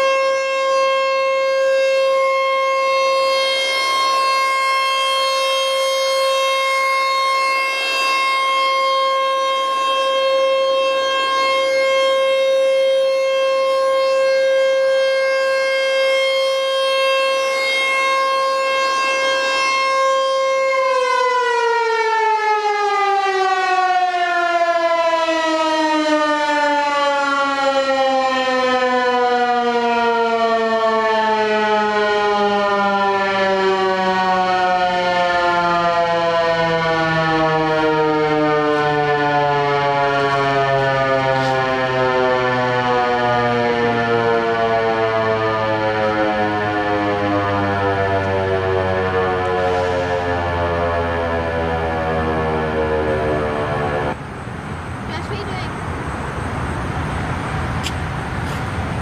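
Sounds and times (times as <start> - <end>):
warning siren wailing: 0.0 - 59.0.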